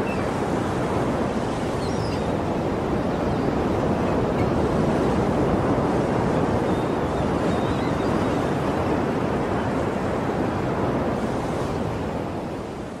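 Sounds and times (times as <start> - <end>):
sea surf rushing: 0.0 - 13.0.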